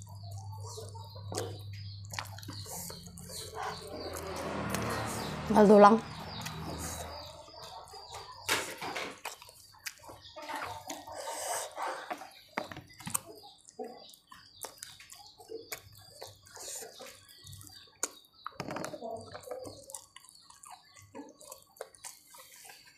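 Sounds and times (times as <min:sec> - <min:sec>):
wet chewing and lip-smacking: 0:00.0 - 0:05.1, 0:09.2 - 0:18.6, 0:19.3 - 0:22.9.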